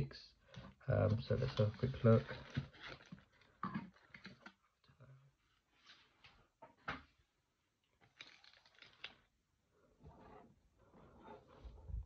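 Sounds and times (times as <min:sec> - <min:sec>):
packaging rustling: 0:01.4 - 0:04.6, 0:08.0 - 0:09.4.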